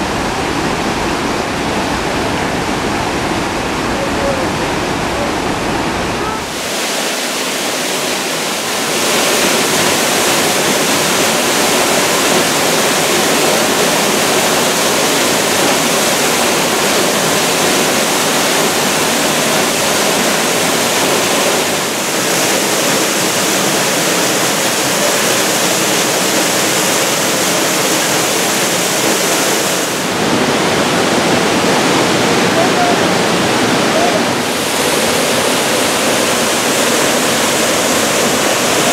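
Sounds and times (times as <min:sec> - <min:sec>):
waterfall pouring onto rocks: 0:06.4 - 0:30.2, 0:34.3 - 0:38.9.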